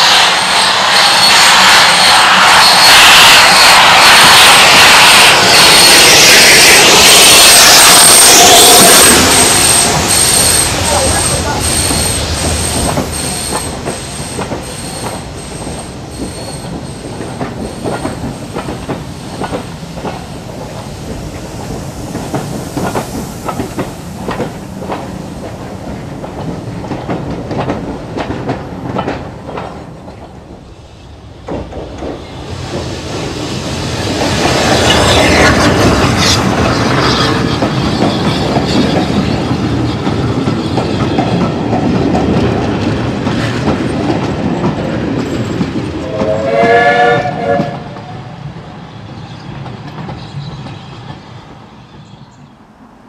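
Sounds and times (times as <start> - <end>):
train wheels squealing: 0.0 - 19.8, 33.8 - 41.7, 44.6 - 52.6
train wheels clicking over rail joints: 4.2 - 30.7, 31.4 - 46.5.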